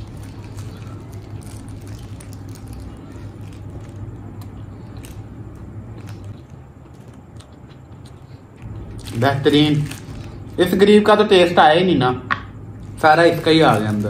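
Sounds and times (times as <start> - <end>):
wet chewing: 0.0 - 9.2
steady low hum: 0.0 - 14.0.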